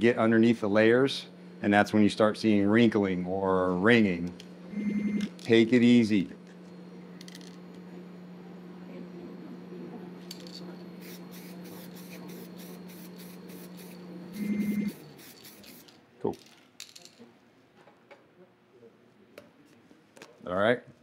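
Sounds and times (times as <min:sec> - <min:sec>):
steady low hum: 0:00.0 - 0:16.2
aerosol spray bursts: 0:11.0 - 0:16.0.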